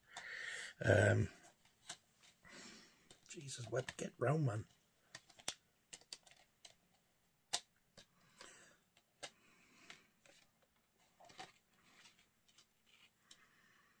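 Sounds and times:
plastic case clicks and rustles: 3.0s - 13.4s.

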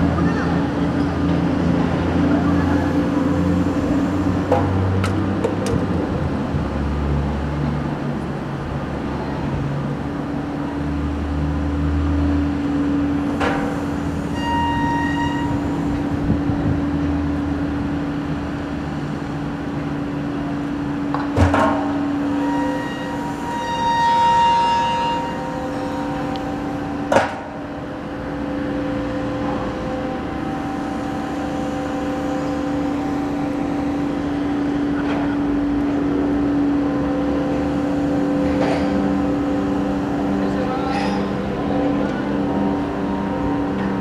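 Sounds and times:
crane machinery drone: 0.0s - 44.0s
brief higher tone: 14.3s - 15.8s.

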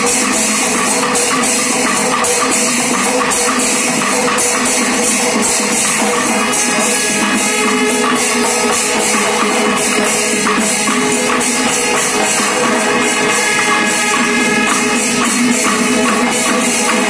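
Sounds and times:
drums playing steady rhythm: 0.0s - 17.0s
hand cymbals: 0.0s - 17.0s
horns holding long notes: 6.0s - 17.0s.

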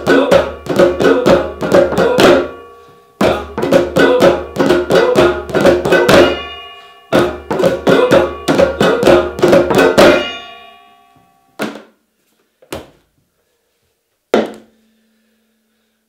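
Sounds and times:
percussion on household objects: 0.0s - 10.8s
mallet hitting plastic jug: 14.4s - 14.7s.

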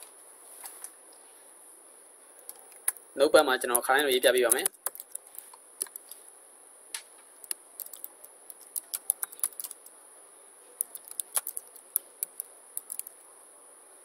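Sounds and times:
keyboard keys clicking: 4.5s - 5.2s, 7.5s - 9.8s, 10.8s - 13.1s.

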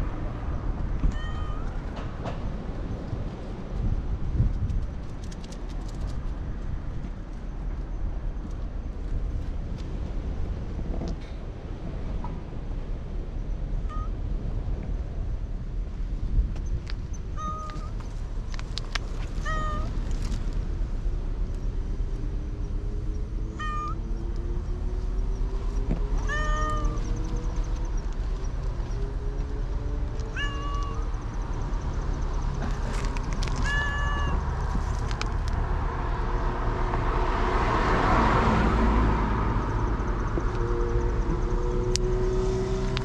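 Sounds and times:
low outdoor rumble: 0.0s - 43.0s
cat meowing: 1.1s - 1.7s, 13.9s - 14.1s, 17.4s - 18.0s, 19.4s - 20.0s, 23.5s - 24.1s, 26.2s - 27.1s, 30.3s - 31.1s, 33.6s - 34.5s.

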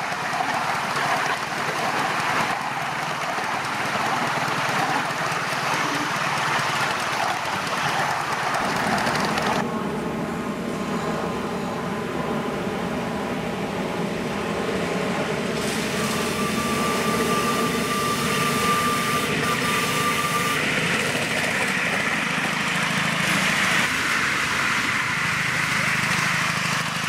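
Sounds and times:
model steam locomotive running: 0.0s - 9.6s, 15.5s - 27.0s
thin high tone: 15.7s - 20.9s.

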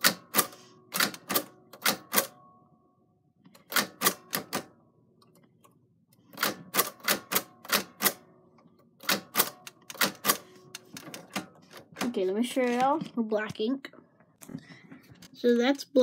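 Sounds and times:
typewriter keys striking: 0.0s - 2.3s, 3.6s - 4.7s, 6.3s - 8.2s, 9.0s - 12.1s.

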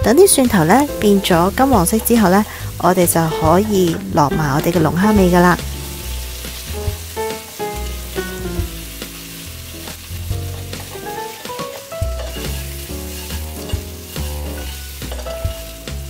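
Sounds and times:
lobster sizzling in hot oil: 0.2s - 16.0s
tongs tapping a pan: 9.9s - 15.7s.

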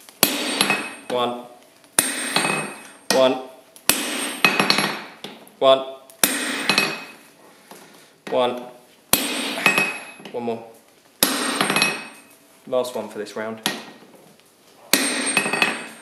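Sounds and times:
hammer striking steel on anvil: 0.2s - 1.2s, 2.0s - 3.3s, 3.9s - 5.2s, 6.2s - 7.2s, 9.1s - 10.3s, 11.2s - 12.3s, 14.9s - 16.0s.

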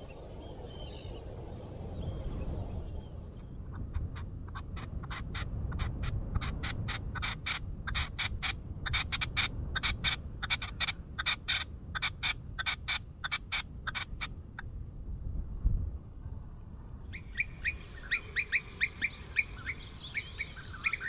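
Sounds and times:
partridge calling: 2.8s - 14.4s, 17.1s - 21.0s.

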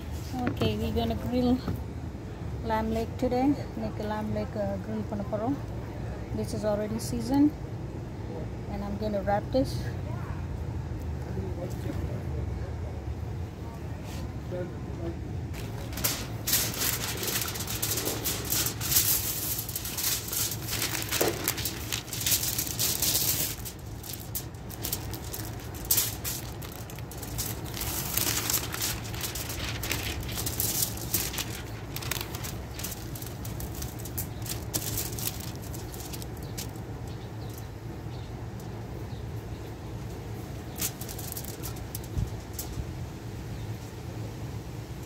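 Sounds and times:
low background rumble: 0.0s - 45.0s
foil and paper crinkling: 15.5s - 37.7s, 40.6s - 42.9s.

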